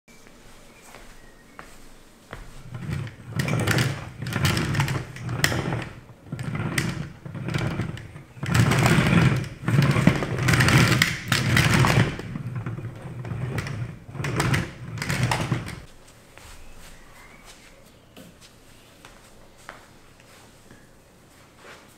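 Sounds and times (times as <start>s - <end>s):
plastic wheels rolling on wooden floor: 2.4s - 15.9s
clicking wheel rollers: 2.7s - 15.9s.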